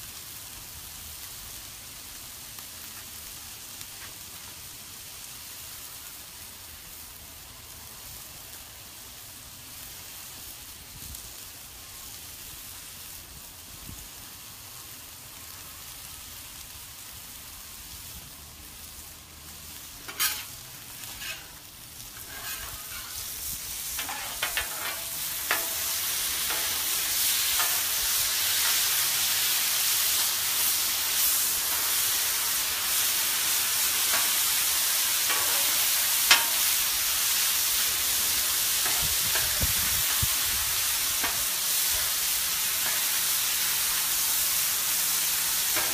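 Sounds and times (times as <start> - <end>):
chicken sizzling on a griddle: 0.0 - 45.9
metal spatula scraping steel plate: 20.1 - 21.6, 22.2 - 23.3, 24.0 - 26.8.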